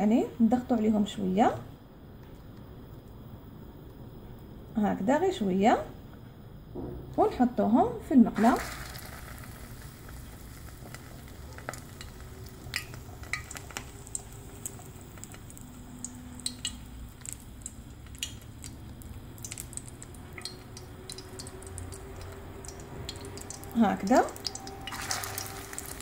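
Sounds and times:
patty sizzling in oil: 8.4 - 26.0.

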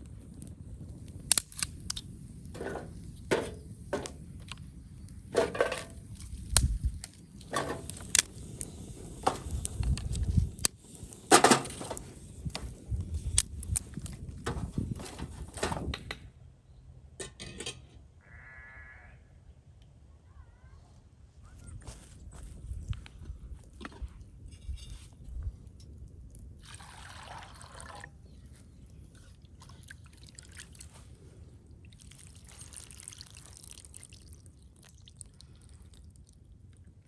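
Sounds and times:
dry wood sticks crackling: 1.2 - 4.6, 5.3 - 15.6.

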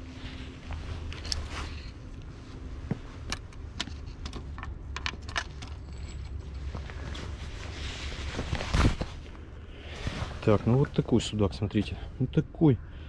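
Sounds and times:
handling clicks and knocks: 3.2 - 6.6.

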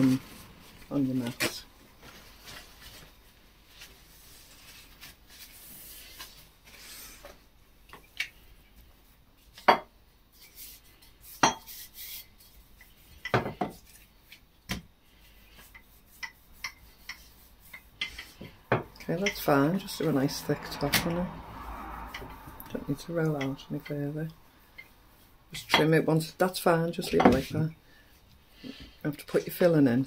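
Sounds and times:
rolling pin rolling pastry: 15.3 - 21.3.

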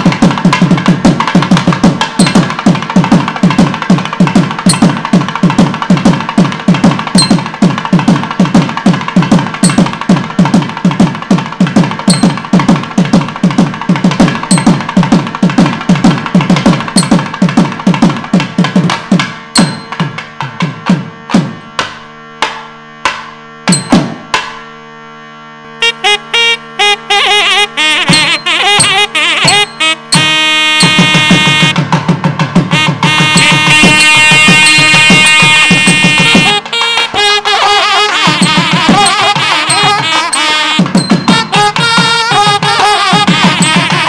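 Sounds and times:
held notes: 0.0 - 3.4, 4.2 - 5.4, 6.9 - 7.8, 9.4 - 10.8, 12.0 - 12.7, 13.9 - 15.4, 16.2 - 17.5, 19.5 - 20.4, 21.2 - 31.8, 32.7 - 44.0
fast steady drumming: 0.0 - 24.6, 25.8 - 44.0.

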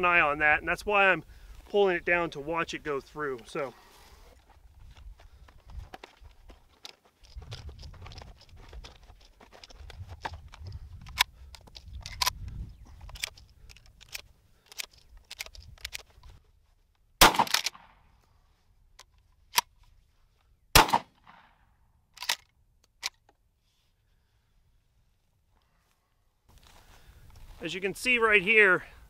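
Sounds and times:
shells clicking into shotgun magazine: 5.9 - 16.4, 17.2 - 17.9, 22.1 - 23.4
shotgun pump action clacking: 10.5 - 16.2, 17.2 - 17.9, 22.2 - 23.3.

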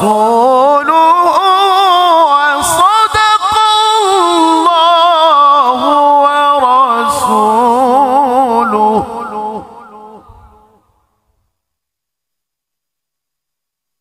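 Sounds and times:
man reciting melodically: 0.0 - 10.9.

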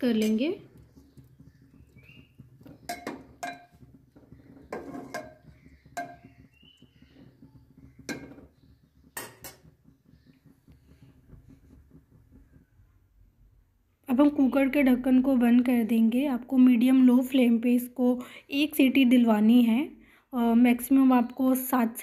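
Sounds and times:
metal ladle clinking on pot: 2.9 - 3.8, 4.7 - 6.2, 9.2 - 9.6.

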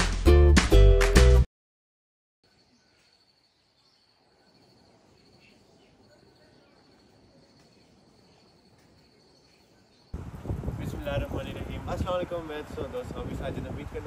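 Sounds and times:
high-pitched insect trill: 2.5 - 10.2
soft outdoor hiss: 2.5 - 14.0.

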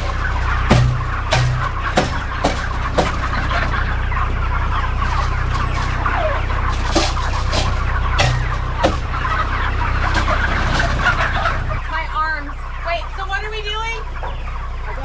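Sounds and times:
chickens clucking and peeping: 0.0 - 15.0
low engine hum: 0.0 - 15.0
sharp knocks: 0.7 - 3.3, 6.8 - 9.2.

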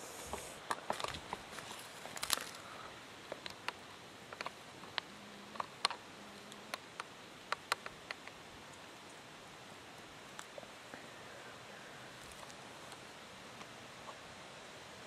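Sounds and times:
footsteps crunching on leaves: 0.9 - 2.7.

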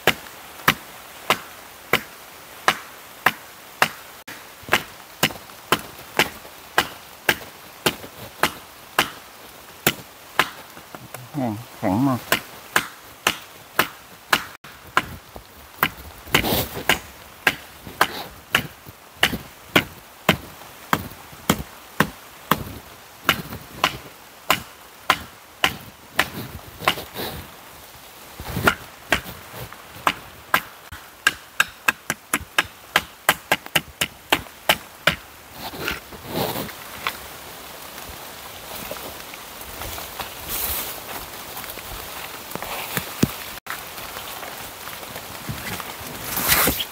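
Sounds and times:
blade chopping dry wood: 0.0 - 11.0, 12.2 - 27.3, 28.5 - 37.2.

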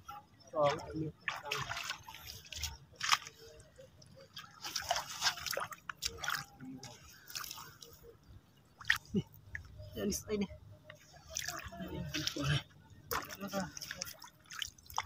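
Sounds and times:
water splashing and dripping: 0.5 - 8.0, 11.2 - 15.0.

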